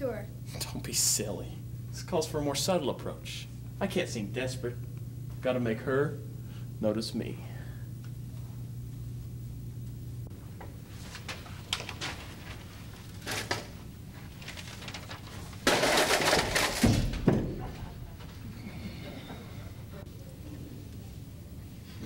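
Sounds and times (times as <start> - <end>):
rustling clatter: 11.1 - 18.4
heavy thumps on floor: 16.8 - 17.8.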